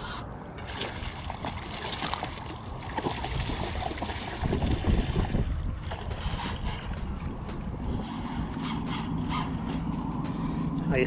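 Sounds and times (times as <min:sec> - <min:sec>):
wind noise on microphone: 0:03.0 - 0:10.2.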